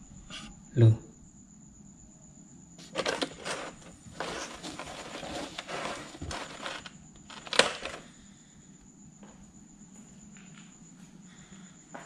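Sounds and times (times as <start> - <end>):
insect trill: 0.0 - 12.0
objects rustling and scraping: 2.8 - 8.2.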